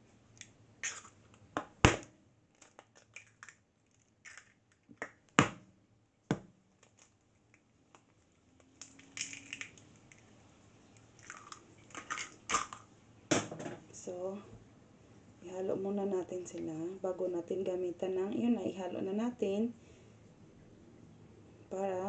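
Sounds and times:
crackling of broken shell: 0:00.4 - 0:05.4, 0:06.7 - 0:10.4, 0:11.0 - 0:13.5.

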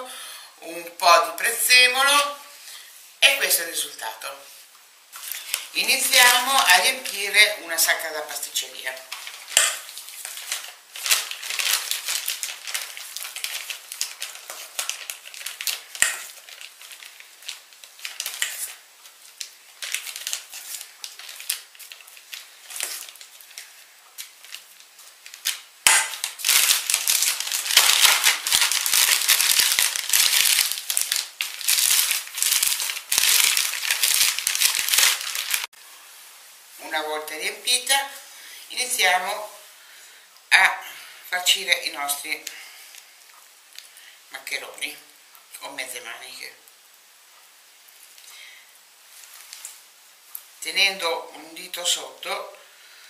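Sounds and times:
plastic bag crinkling: 0:05.1 - 0:35.7, 0:49.1 - 0:50.6.

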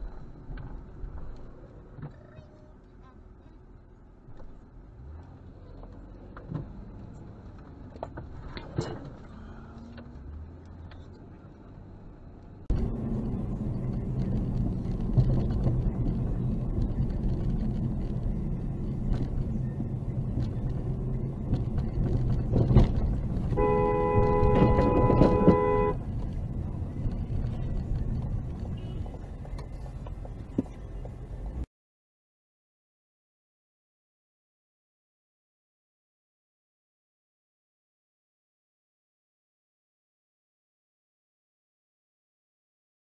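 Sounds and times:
car engine and road noise: 0:00.0 - 0:31.7.

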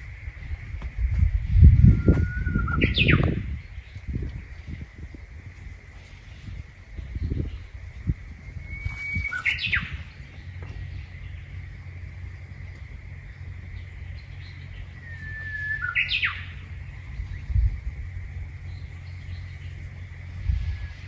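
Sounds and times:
low rumble: 0:00.0 - 0:21.0
bird singing whistled song: 0:01.6 - 0:04.0, 0:08.3 - 0:12.0, 0:13.8 - 0:17.8.

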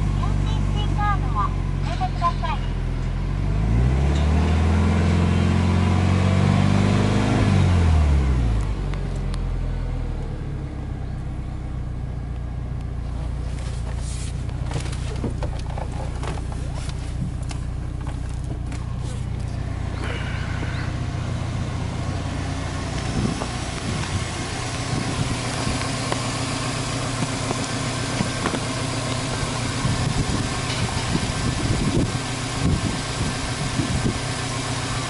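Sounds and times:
car engine revving and idling: 0:00.0 - 0:35.0
light clicks and rustles: 0:13.3 - 0:19.6.

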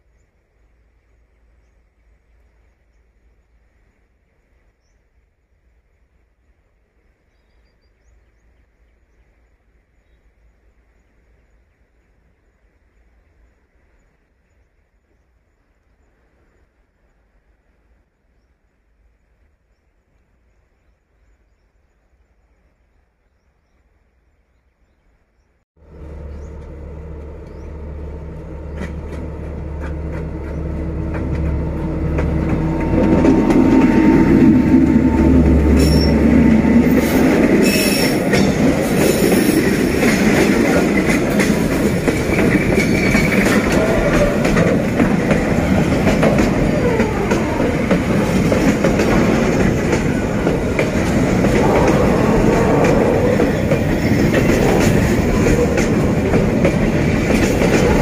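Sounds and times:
locomotive diesel engine: 0:25.8 - 0:58.0
train wheels clicking on rails: 0:25.9 - 0:58.0.

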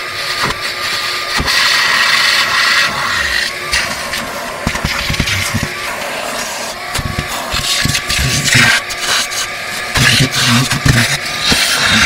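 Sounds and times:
shop vacuum sucking water: 0:00.0 - 0:12.0.

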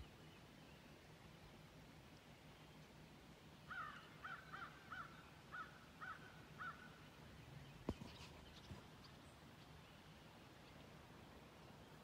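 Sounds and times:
faint outdoor background: 0:00.0 - 0:12.0
crow cawing: 0:03.7 - 0:06.9.

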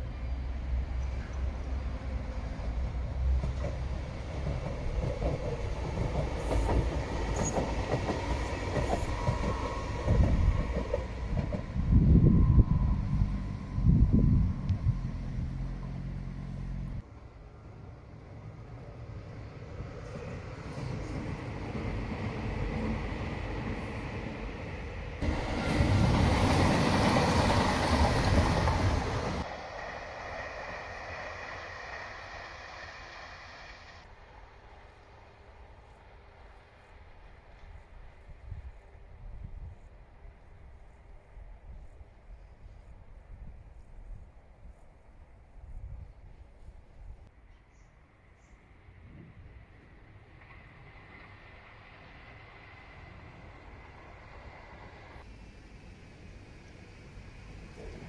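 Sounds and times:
train wheels rumbling on rail: 0:00.0 - 0:17.1, 0:18.3 - 0:41.9, 0:48.9 - 0:58.0
distant train whine: 0:00.0 - 0:58.0
metro train wheels clattering: 0:02.6 - 0:13.8, 0:25.2 - 0:34.1.

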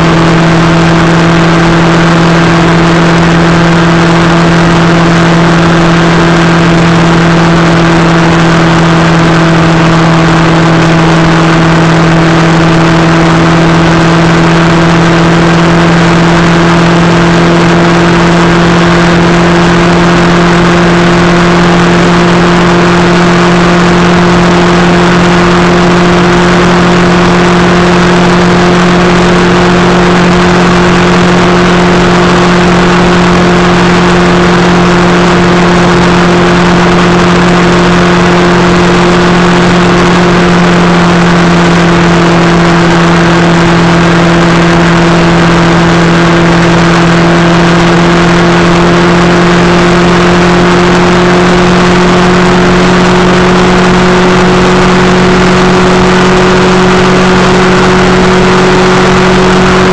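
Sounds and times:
loud rushing noise: 0:00.0 - 0:59.9
motorcycle engine running: 0:00.0 - 0:59.9.

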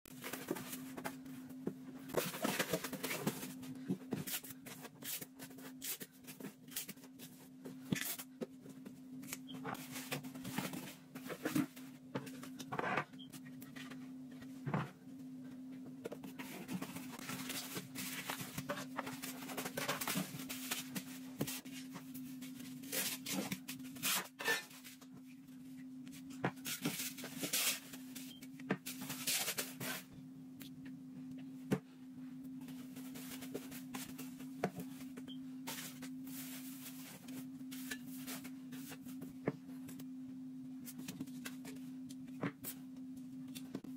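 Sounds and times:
cardboard rustling and folding: 0:00.1 - 0:08.3, 0:16.2 - 0:25.0, 0:32.6 - 0:39.2
steady low hum: 0:00.1 - 0:43.9.

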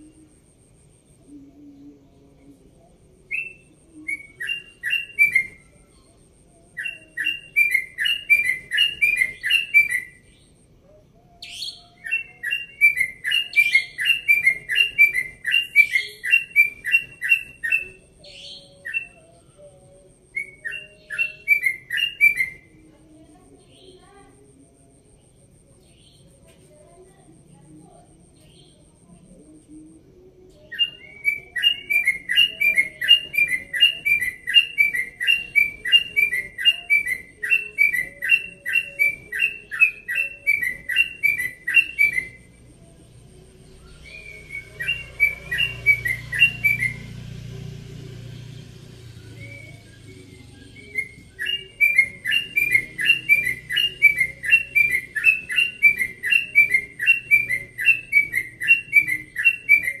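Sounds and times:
bird singing whistled phrases: 0:03.3 - 0:06.0, 0:06.7 - 0:10.6, 0:11.4 - 0:19.2, 0:20.3 - 0:22.8, 0:30.5 - 0:42.6, 0:43.7 - 0:47.4, 0:48.8 - 1:00.0.

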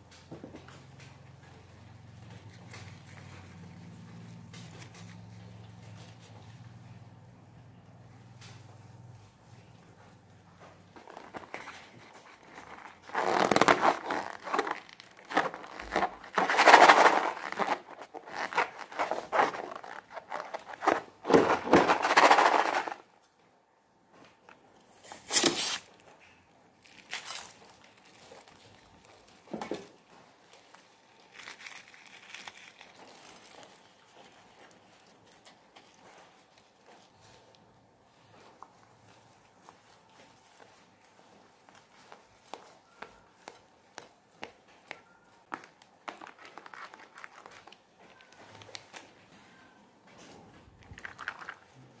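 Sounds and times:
faint handling sounds: 0:00.1 - 0:52.0
balloon rubbing crinkly rustling: 0:11.0 - 0:23.0.

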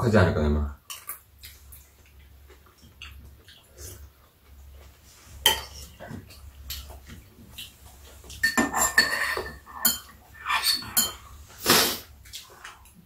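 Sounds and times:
spoons clinking against bowls: 0:05.4 - 0:05.9, 0:08.3 - 0:11.2.

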